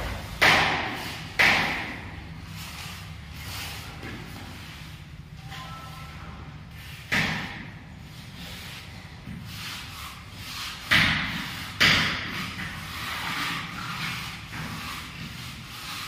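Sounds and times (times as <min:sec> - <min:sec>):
sharp knocks: 0:00.0 - 0:02.1.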